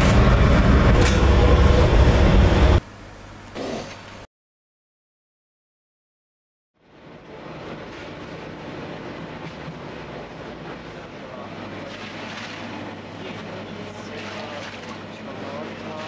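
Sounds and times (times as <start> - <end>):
machinery rushing sound: 0.0 - 2.8
low machinery hum: 0.0 - 4.2, 6.8 - 16.0.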